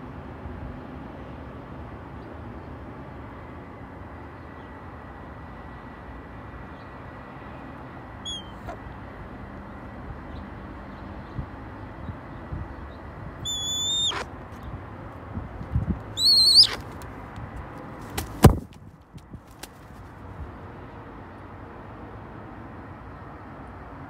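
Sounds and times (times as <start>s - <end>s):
low outdoor rumble: 0.0s - 22.4s
short high chirp: 13.5s - 14.2s.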